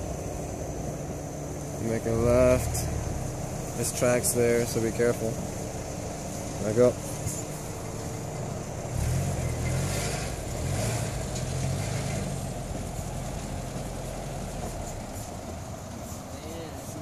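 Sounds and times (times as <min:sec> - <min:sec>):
car engine pulling away: 0:00.0 - 0:16.4.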